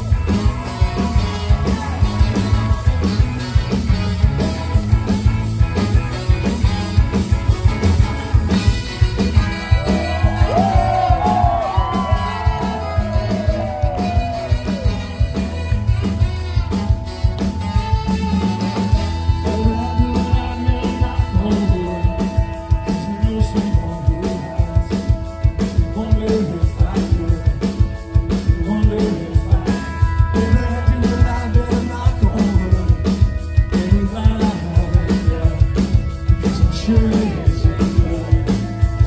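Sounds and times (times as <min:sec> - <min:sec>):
drum kit beat: 0:00.0 - 0:39.0
live rock band playing: 0:00.0 - 0:39.0
person singing: 0:18.8 - 0:39.0.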